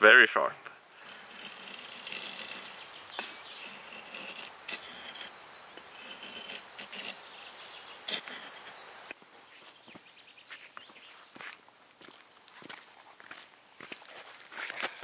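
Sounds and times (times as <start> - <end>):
axe scraping wooden stick: 1.0 - 9.2.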